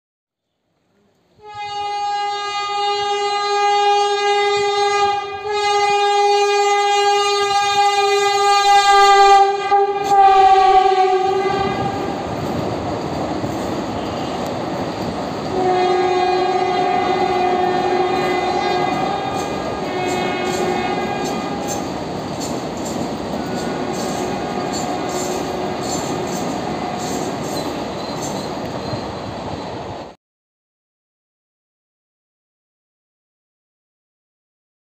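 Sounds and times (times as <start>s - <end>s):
train horn blast: 1.4s - 12.2s, 13.9s - 14.5s, 15.5s - 22.0s, 23.4s - 27.7s
train running past: 1.4s - 30.2s.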